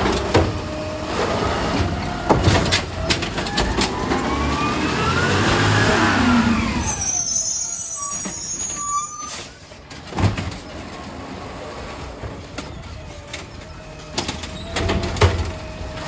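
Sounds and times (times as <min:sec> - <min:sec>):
truck engine revving: 0:00.0 - 0:07.2.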